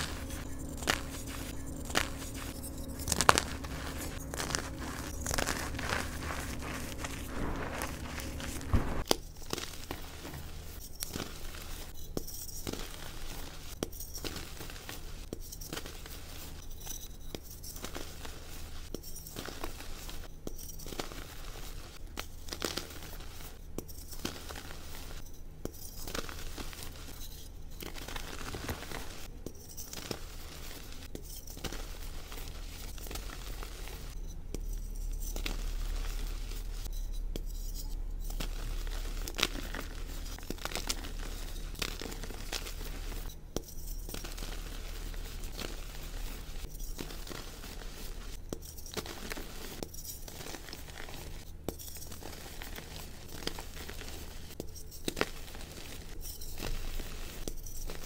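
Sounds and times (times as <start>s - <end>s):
chalk crunching in hands: 0.0s - 9.0s, 28.0s - 58.0s
sharp crackles: 0.0s - 9.1s.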